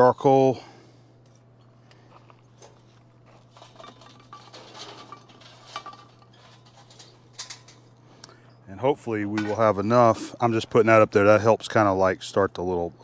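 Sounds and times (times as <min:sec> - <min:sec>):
charcoal clinking on metal lid: 0:03.5 - 0:07.9.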